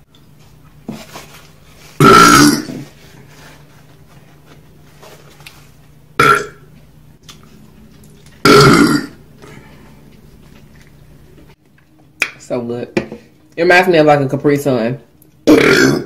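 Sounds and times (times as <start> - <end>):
woman burping loudly: 2.0 - 2.8, 6.2 - 6.6, 8.4 - 9.5, 15.4 - 16.0.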